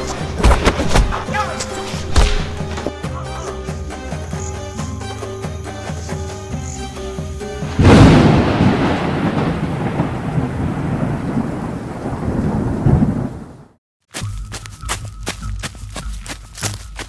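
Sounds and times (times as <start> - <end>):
music: 0.0 - 9.0, 14.1 - 17.0
thunder rumbling: 7.7 - 13.8.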